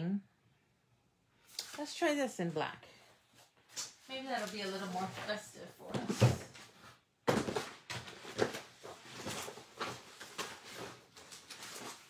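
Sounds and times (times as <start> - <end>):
craft supplies knocking and rustling: 4.4 - 12.0.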